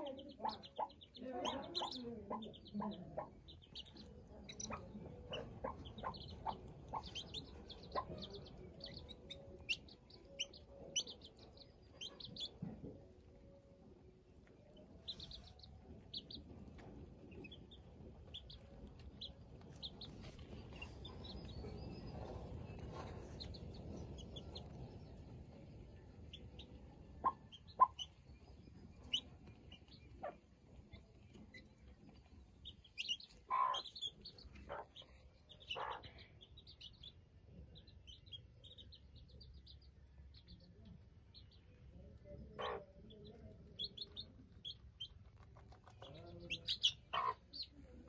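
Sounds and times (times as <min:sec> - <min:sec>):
hen clucking: 0:00.0 - 0:13.0, 0:26.2 - 0:28.2, 0:32.6 - 0:36.9, 0:42.3 - 0:48.0
baby chicks peeping: 0:00.0 - 0:48.0.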